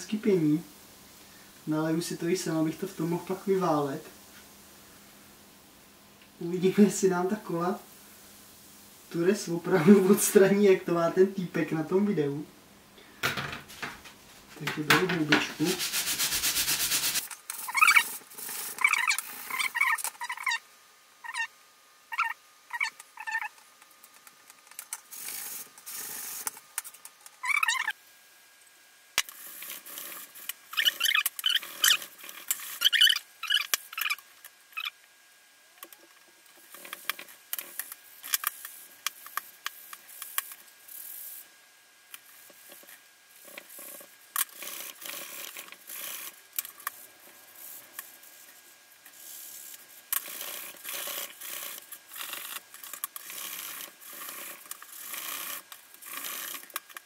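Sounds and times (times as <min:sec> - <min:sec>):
sponge scrubbing metal: 0:15.2 - 0:20.4
short high squeaks: 0:17.6 - 0:18.1, 0:18.8 - 0:20.6, 0:21.2 - 0:21.5, 0:22.1 - 0:23.6, 0:27.4 - 0:28.0, 0:30.7 - 0:32.1, 0:32.7 - 0:35.0.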